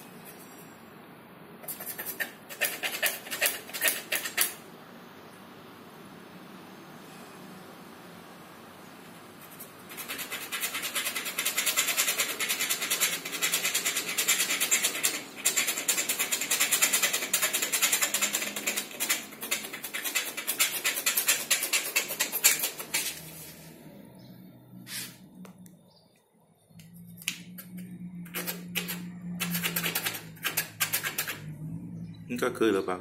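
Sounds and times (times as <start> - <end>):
firesteel rod scraped with striker: 1.6 - 4.6.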